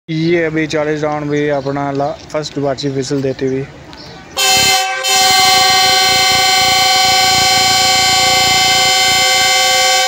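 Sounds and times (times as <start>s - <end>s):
locomotive air horn: 4.4s - 10.0s.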